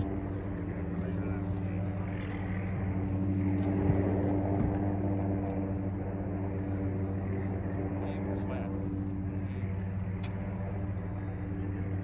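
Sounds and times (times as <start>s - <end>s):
outboard motor running: 0.0s - 12.0s.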